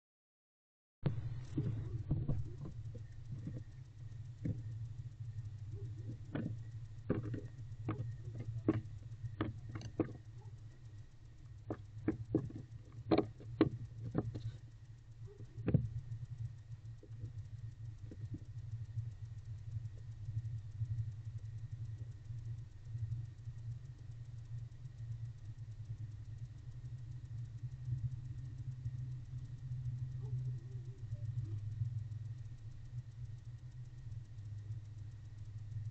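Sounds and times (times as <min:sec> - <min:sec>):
low electrical hum: 0:01.0 - 0:35.9
owl knocking and scratching on wood: 0:05.8 - 0:10.6, 0:11.7 - 0:14.6, 0:15.3 - 0:15.9.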